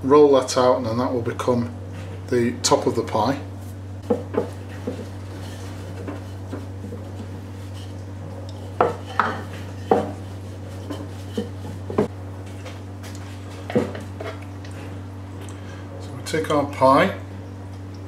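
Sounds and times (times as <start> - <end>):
steady low hum: 0.0 - 18.0
rolling pin rolling pastry: 3.6 - 14.4
rolling pin knocking and clattering: 8.8 - 10.2.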